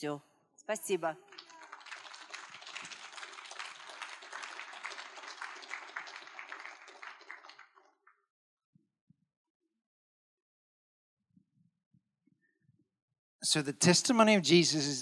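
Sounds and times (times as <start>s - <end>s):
audience clapping: 1.2s - 8.1s.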